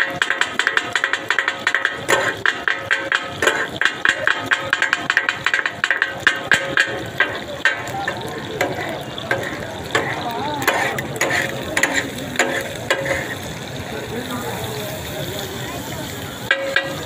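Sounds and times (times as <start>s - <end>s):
steel spatulas striking griddle: 0.0s - 13.4s, 16.5s - 17.0s
meat frying: 0.0s - 17.0s.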